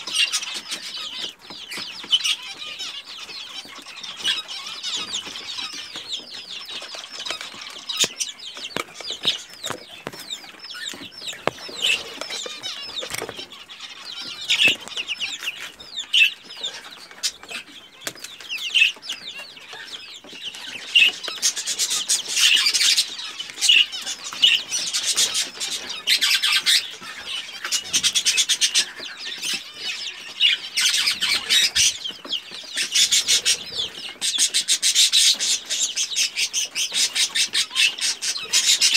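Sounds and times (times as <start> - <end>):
chicks peeping: 0.0 - 38.9
chicks scratching and pecking: 0.0 - 38.9.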